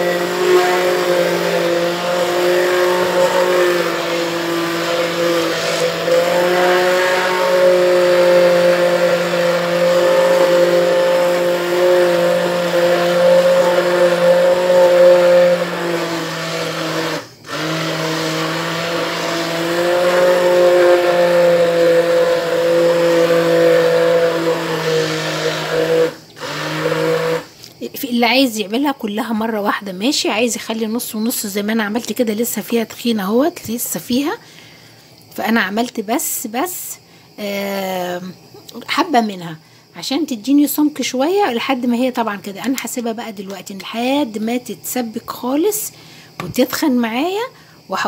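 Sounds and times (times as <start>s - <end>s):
hand blender motor running: 0.0s - 27.5s.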